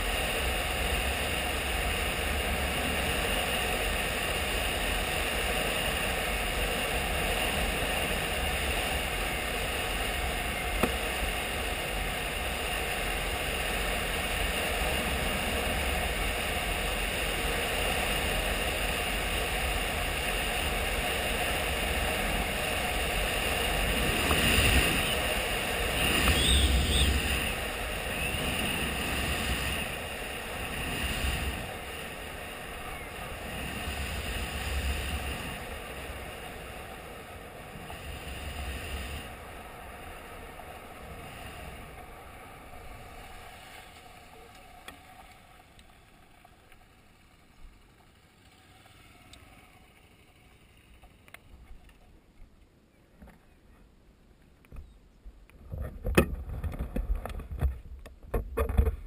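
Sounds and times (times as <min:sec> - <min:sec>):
motorcycle engine cruising: 0:00.0 - 0:52.1
wind rushing past microphone: 0:20.7 - 0:39.4.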